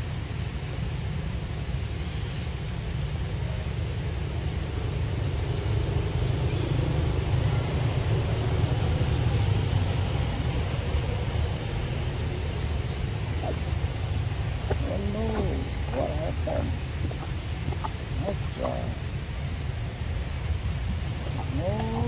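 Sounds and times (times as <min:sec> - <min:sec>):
faint outdoor hiss: 0:00.0 - 0:22.0.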